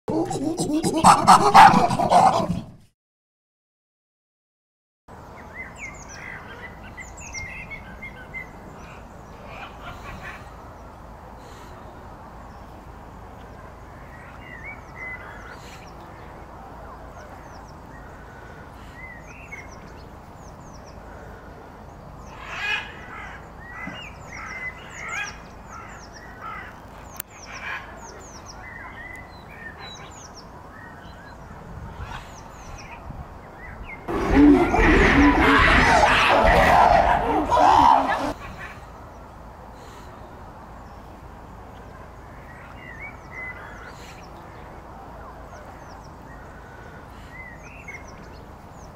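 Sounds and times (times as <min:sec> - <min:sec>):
low outdoor background: 0:00.0 - 0:02.9, 0:05.1 - 0:48.9
loud chimpanzee calls: 0:00.1 - 0:02.7, 0:34.1 - 0:38.7.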